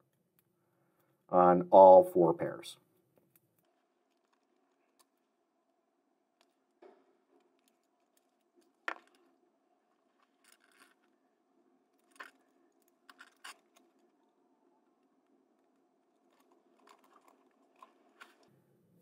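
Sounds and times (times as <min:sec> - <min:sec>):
quiet room hum: 0:00.0 - 0:19.0.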